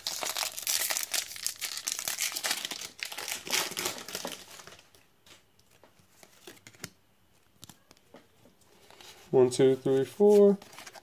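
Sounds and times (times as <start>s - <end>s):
foil wrapper crinkling: 0.0s - 5.0s.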